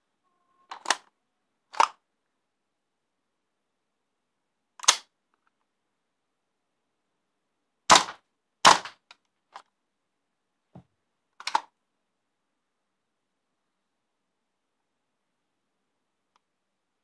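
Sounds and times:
airsoft rifle shots cracking: 7.9 - 9.0.

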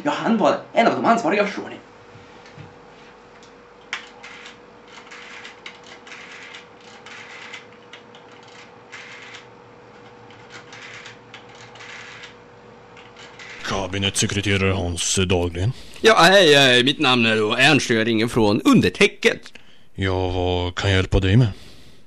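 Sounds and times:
rotary phone dial clicking: 3.9 - 12.4.

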